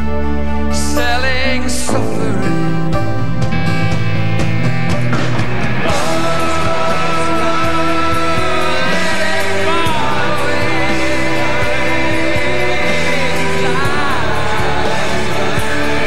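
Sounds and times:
man singing: 0:00.7 - 0:03.4, 0:05.8 - 0:16.0
held instrumental notes: 0:01.6 - 0:16.0
steady drum beat: 0:02.1 - 0:16.0.

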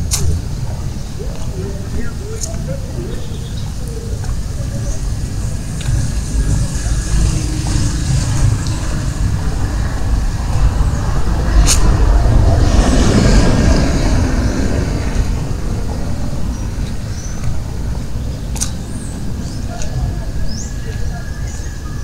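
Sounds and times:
motor vehicle passing: 0:00.0 - 0:20.9
low traffic rumble: 0:00.0 - 0:22.0
sharp click: 0:18.5 - 0:18.8.

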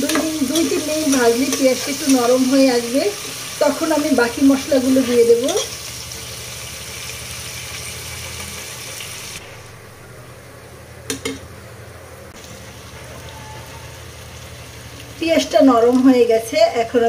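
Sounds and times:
onions sizzling in hot oil: 0:00.0 - 0:09.6, 0:12.3 - 0:16.7.

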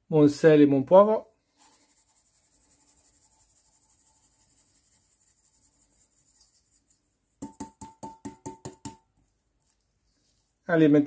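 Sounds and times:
ringing taps on metal bowl: 0:07.4 - 0:09.0.

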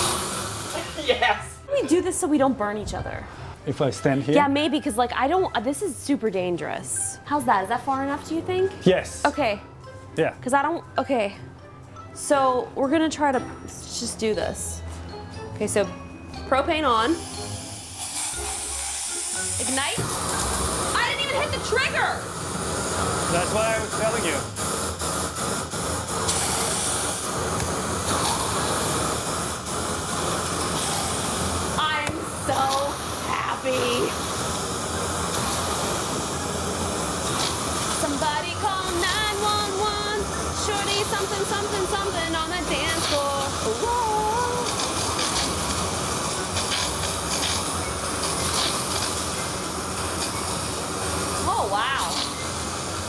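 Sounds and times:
propane torches hissing: 0:00.0 - 0:02.4, 0:16.8 - 0:53.0.

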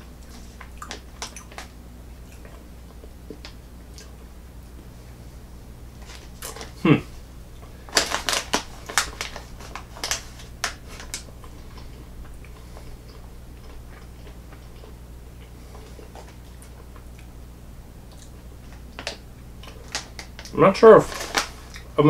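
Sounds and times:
low hum: 0:00.0 - 0:22.0
plastic package crinkling: 0:07.6 - 0:14.9, 0:18.7 - 0:22.0.

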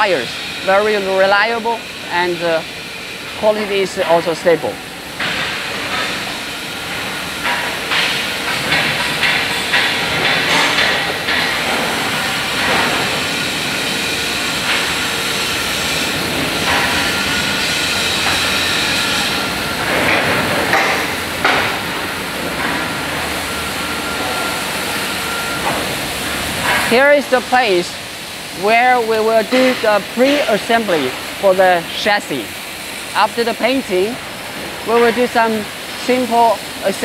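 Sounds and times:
steady hiss: 0:00.0 - 0:37.0
knocks and clanks: 0:05.2 - 0:06.3, 0:06.9 - 0:13.4, 0:16.2 - 0:23.4, 0:29.5 - 0:30.7.

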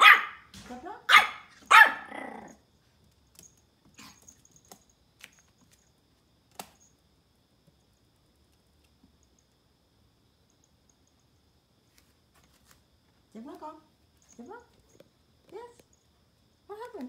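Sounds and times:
puppy barking: 0:00.0 - 0:00.5, 0:01.1 - 0:02.5.

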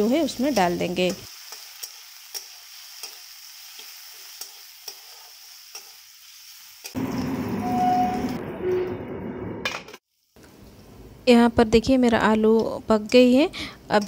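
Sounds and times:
potatoes sizzling in oil: 0:00.0 - 0:07.6.

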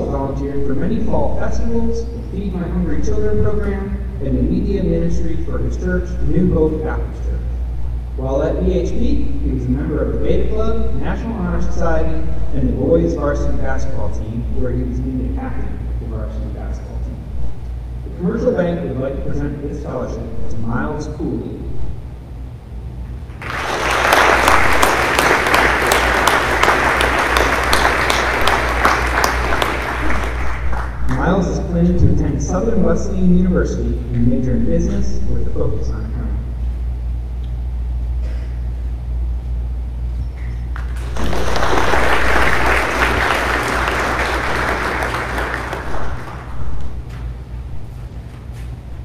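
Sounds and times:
low hum: 0:00.0 - 0:49.0
small audience applauding: 0:23.3 - 0:31.2, 0:40.7 - 0:46.9.

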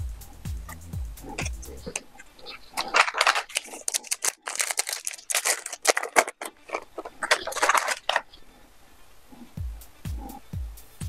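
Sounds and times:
cards being handled: 0:02.7 - 0:08.4
foil wrapper crinkling and tearing: 0:02.8 - 0:08.4.

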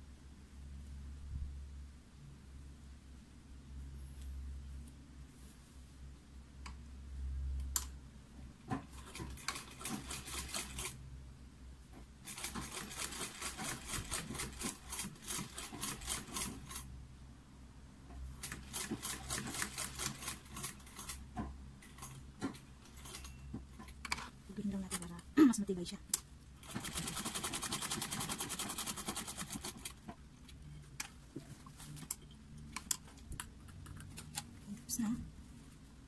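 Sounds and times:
sewing machine stitching: 0:08.7 - 0:11.0, 0:12.2 - 0:16.8, 0:18.4 - 0:21.2, 0:26.6 - 0:30.0.

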